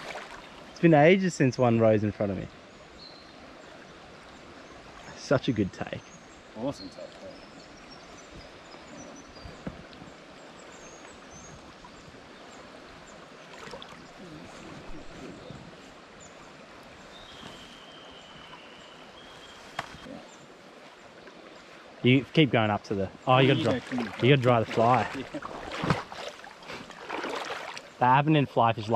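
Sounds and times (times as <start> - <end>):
creek rushing over rocks: 0.0 - 1.8, 21.8 - 28.9.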